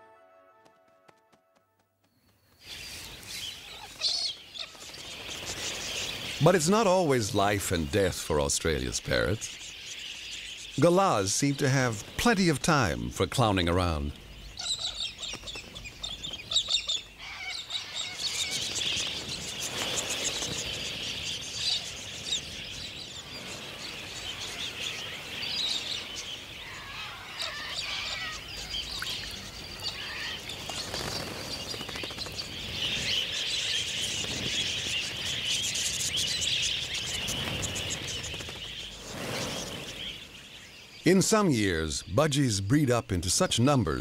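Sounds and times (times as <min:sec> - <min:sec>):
flock of parrots chattering: 0:14.2 - 0:40.5.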